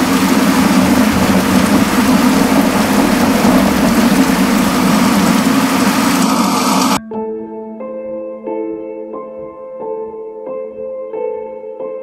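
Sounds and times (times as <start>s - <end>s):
heavy rain on a rooftop: 0.0s - 7.0s.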